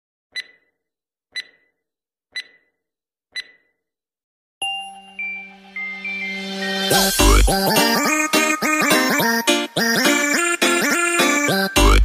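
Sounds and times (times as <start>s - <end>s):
sharp ticking beeps: 0.4s - 0.8s, 1.4s - 1.7s, 2.4s - 2.7s, 3.4s - 3.7s
intro music: 4.6s - 12.0s.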